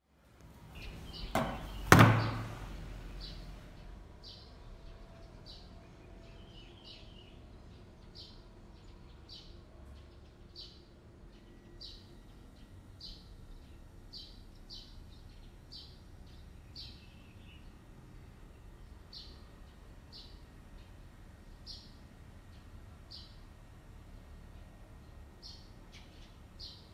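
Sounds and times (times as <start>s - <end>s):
low steady hum: 0.4s - 6.4s.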